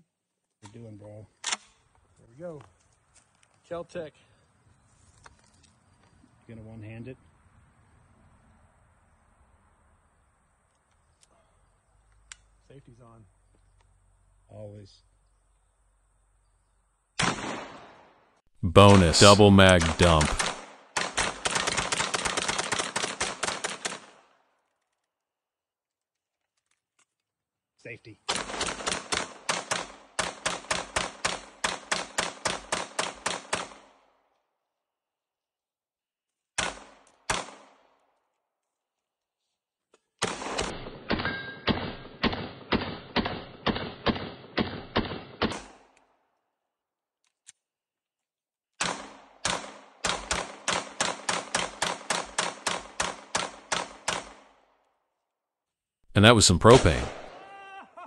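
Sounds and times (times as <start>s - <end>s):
pistol shots: 17.2s - 18.1s, 18.8s - 24.2s, 36.6s - 37.8s, 40.2s - 45.9s, 48.8s - 54.6s, 56.6s - 57.4s
rapid gunfire: 19.8s - 24.2s, 28.3s - 33.8s, 48.8s - 54.4s.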